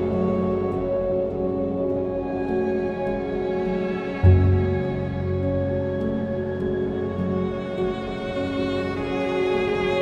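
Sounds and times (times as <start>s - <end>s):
slow cinematic string music: 0.0s - 10.0s.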